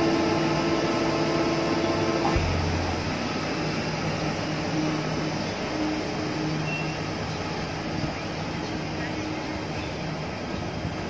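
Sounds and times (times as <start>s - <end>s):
faint electric hum: 0.0s - 11.0s
train wheels rumbling: 0.0s - 11.0s
brief low rumble: 2.2s - 3.7s.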